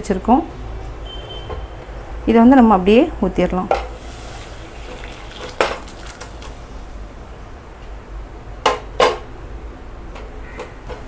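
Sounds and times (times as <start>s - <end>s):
food poured into saucepan: 3.9s - 6.7s.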